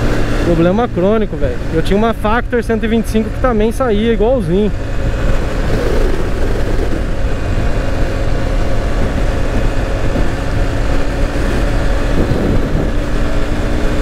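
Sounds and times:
motorcycle engine running: 0.0s - 14.0s
wind rumble on microphone: 4.8s - 14.0s.

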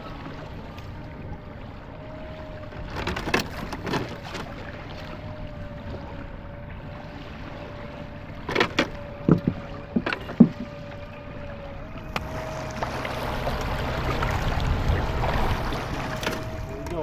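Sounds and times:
boat motor humming: 0.0s - 17.0s
rushing water and wind: 0.0s - 17.0s
sharp knocks and clatters: 8.5s - 10.8s.

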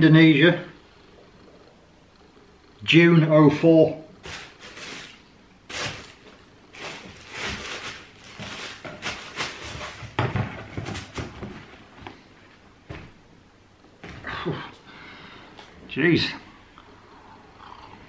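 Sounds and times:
shoes and shoebox rustling: 4.2s - 11.8s.

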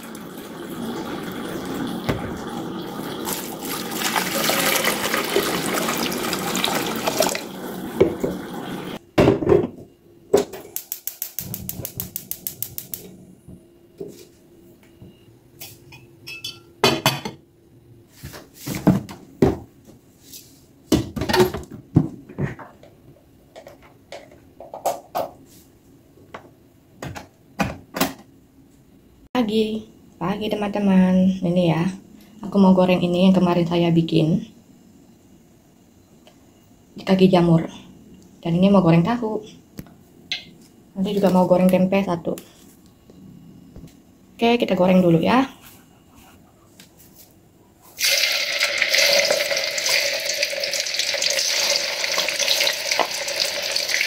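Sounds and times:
water pouring into pot: 0.0s - 9.0s, 48.0s - 54.0s
gas burner igniter ticking: 10.8s - 13.1s
kitchenware clattering: 15.9s - 17.4s.

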